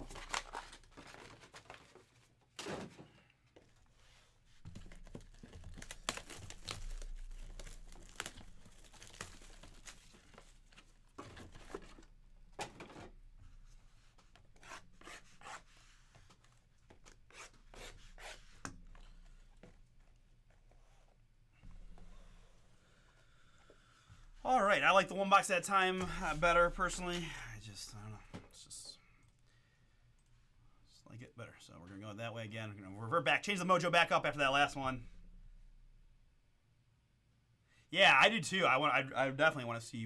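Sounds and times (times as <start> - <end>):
plastic wrap tearing and crinkling: 4.8 - 11.0.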